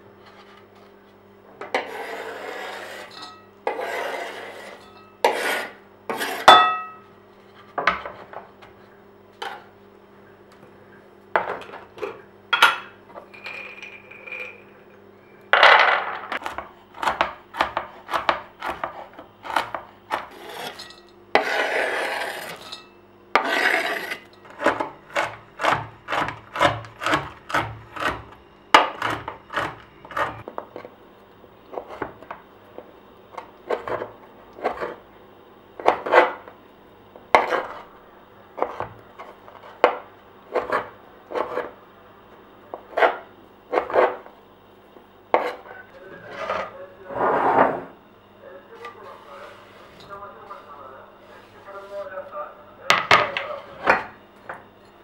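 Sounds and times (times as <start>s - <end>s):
knife scraping board: 1.7s - 6.5s, 16.4s - 22.8s, 23.4s - 30.9s, 33.7s - 35.0s, 35.8s - 36.4s, 37.3s - 37.9s, 38.6s - 39.9s, 40.5s - 41.8s, 42.8s - 44.3s, 45.3s - 48.0s
knife chopping on wooden board: 16.4s - 20.8s, 24.5s - 30.5s.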